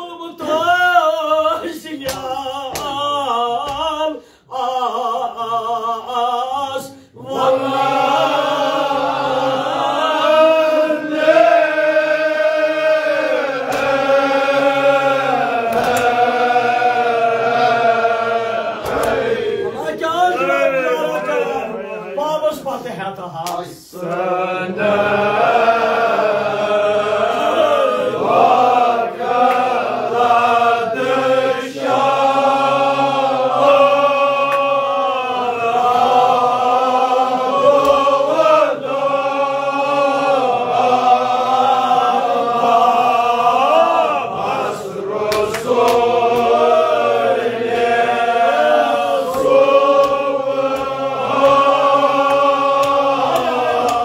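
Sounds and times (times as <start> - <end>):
men chanting in unison: 0.0 - 54.0.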